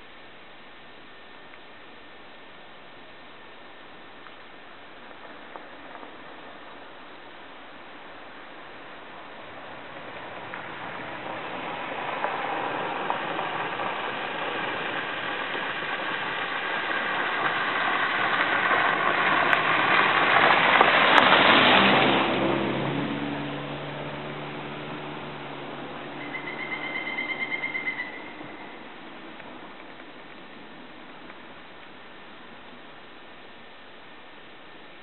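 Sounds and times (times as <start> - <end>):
motor vehicle passing: 9.5 - 29.9
bird calls: 26.2 - 28.9.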